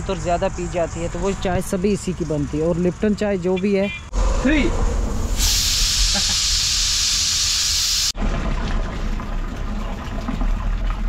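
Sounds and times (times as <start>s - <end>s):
low steady rumble: 4.1s - 6.2s
pressure cooker steam hiss: 5.3s - 8.2s.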